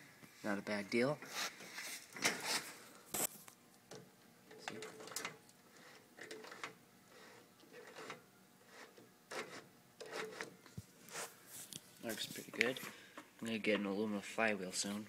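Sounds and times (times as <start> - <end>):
faint steady hum: 0.0 - 15.0
rubbing sounds: 1.2 - 3.3, 7.1 - 12.8.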